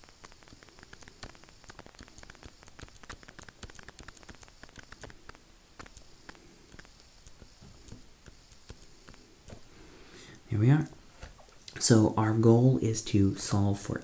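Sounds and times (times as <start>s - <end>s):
stylus tapping on tablet: 0.2s - 9.7s.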